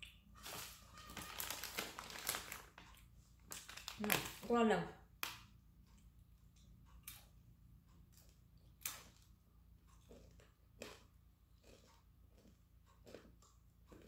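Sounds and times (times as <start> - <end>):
faint sharp clicks of snack pieces: 5.2 - 7.4.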